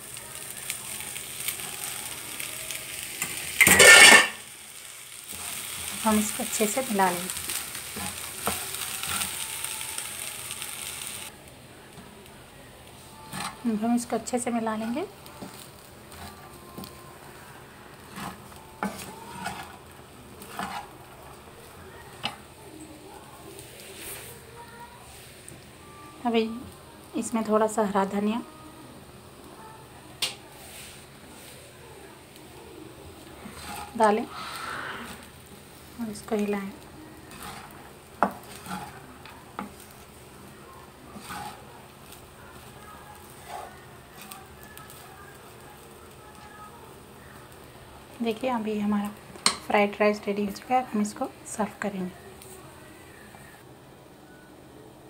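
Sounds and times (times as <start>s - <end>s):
spatula stirring rice in pan: 0.1s - 11.3s, 12.9s - 25.5s, 30.5s - 32.4s, 33.0s - 48.4s.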